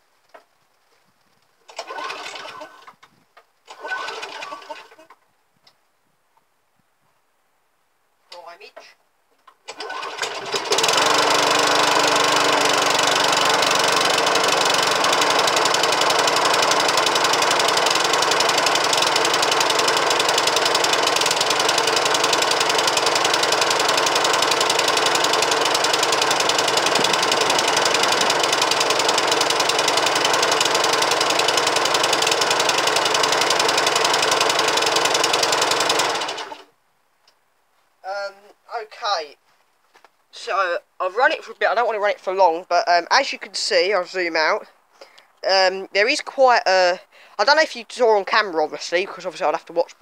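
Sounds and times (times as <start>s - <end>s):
lawnmower engine pull-started: 1.6s - 3.1s, 3.7s - 5.1s, 9.6s - 36.7s.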